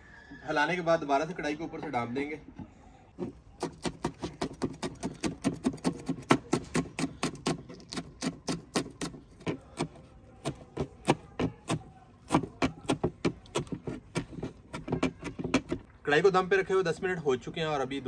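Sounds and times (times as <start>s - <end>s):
knife chopping on wooden board: 3.2s - 15.8s.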